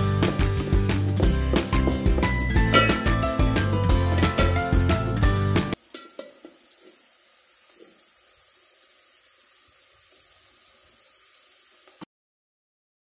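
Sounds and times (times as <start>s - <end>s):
onions sizzling in oil: 2.6s - 12.1s.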